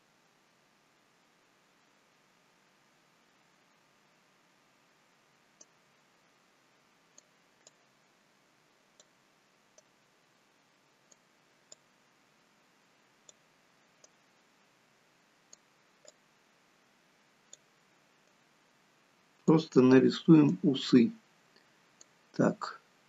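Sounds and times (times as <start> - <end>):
computer mouse clicks: 9.0 - 9.2, 15.5 - 16.2.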